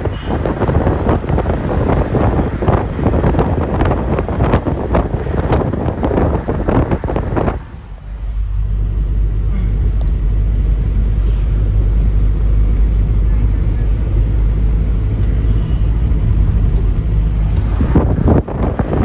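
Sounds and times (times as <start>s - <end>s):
gusty wind on microphone: 0.0s - 8.8s, 14.0s - 19.0s
car driving rumble: 0.0s - 19.0s.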